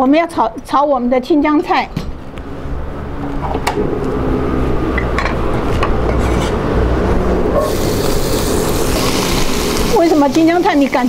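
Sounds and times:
gas stove burner rushing: 7.5s - 11.0s.

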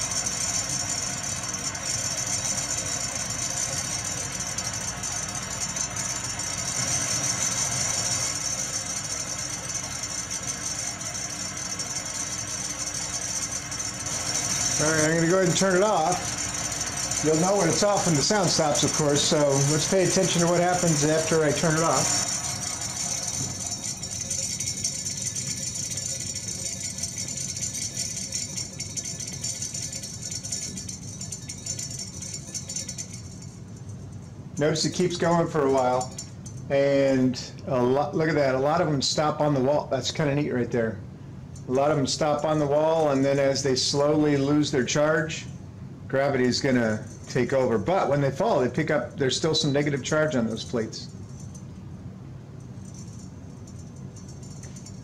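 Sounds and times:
generator motor whirring: 0.0s - 36.7s
tiny beads rattling on metal: 0.0s - 36.7s, 52.6s - 55.0s.

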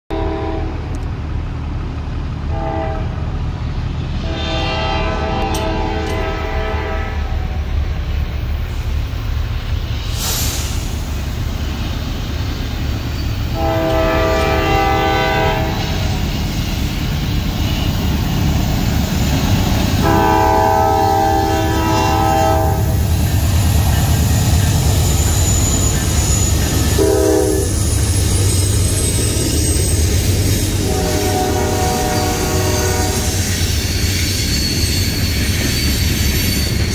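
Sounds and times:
locomotive horn blasts: 0.1s - 0.9s, 2.5s - 3.2s, 4.2s - 7.6s, 13.5s - 16.0s, 20.0s - 23.0s, 27.0s - 27.8s, 30.8s - 33.4s.

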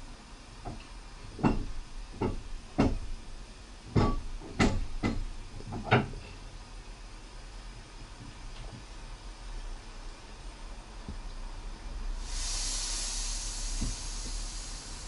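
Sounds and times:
irregular knocks and clunks: 0.7s - 3.1s, 3.9s - 6.3s
steady low rumble: 8.9s - 15.0s.

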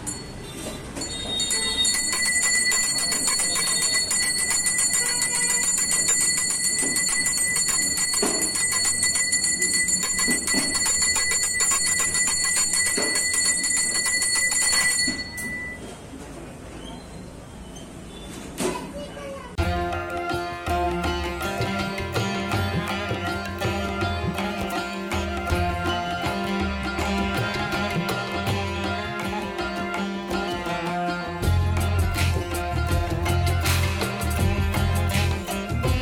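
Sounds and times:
brass hand bell ringing rapidly: 1.1s - 15.8s, 20.2s - 29.4s, 31.4s - 36.0s.

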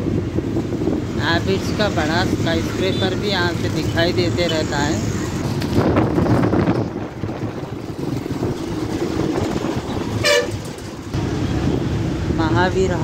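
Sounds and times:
bus engine and road rumble: 0.0s - 13.0s
vehicle horn toot: 10.2s - 10.6s.

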